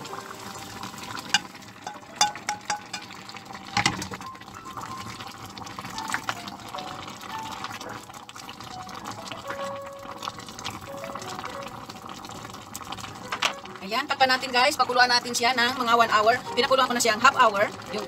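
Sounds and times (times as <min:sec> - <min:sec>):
stew bubbling: 0:00.0 - 0:14.8, 0:15.7 - 0:18.0
cookware clanking: 0:01.3 - 0:03.2.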